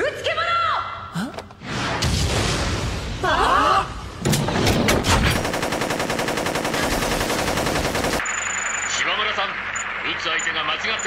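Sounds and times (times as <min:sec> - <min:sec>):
rapid automatic gunfire: 0:04.4 - 0:08.6.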